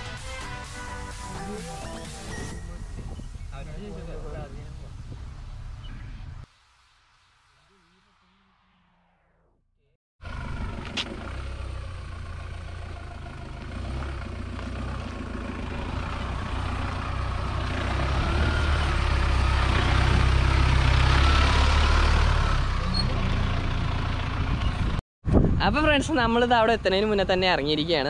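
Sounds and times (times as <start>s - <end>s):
tyre and wind noise: 2.6s - 6.5s, 24.4s - 26.3s
suv engine under load: 10.2s - 25.0s.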